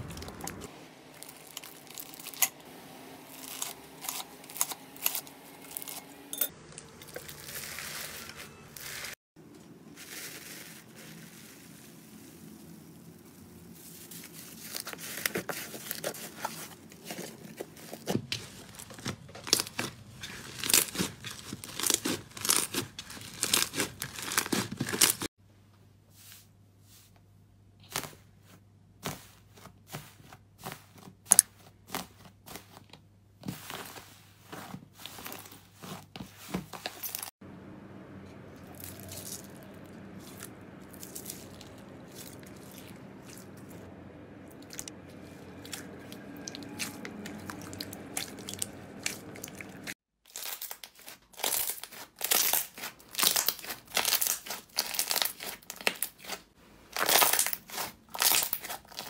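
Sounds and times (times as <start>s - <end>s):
slime crackling and popping: 0.0s - 2.5s, 18.9s - 25.2s, 50.3s - 59.0s.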